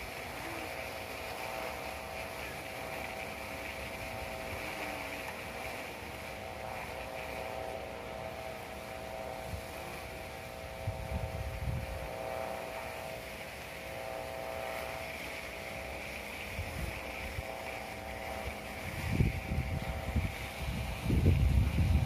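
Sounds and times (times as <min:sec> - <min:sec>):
kite hummer droning: 0:00.0 - 0:22.0
wind rumbling on microphone: 0:00.0 - 0:22.0.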